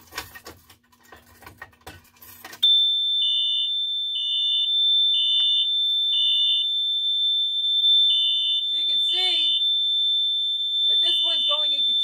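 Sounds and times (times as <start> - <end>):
pulsing alarm beeps: 2.6 - 12.0
steady high piezo alarm tone: 2.6 - 12.0.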